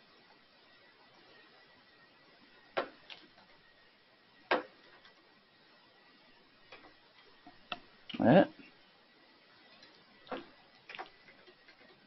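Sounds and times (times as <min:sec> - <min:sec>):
keyboard and mouse clicks: 0:09.8 - 0:12.0.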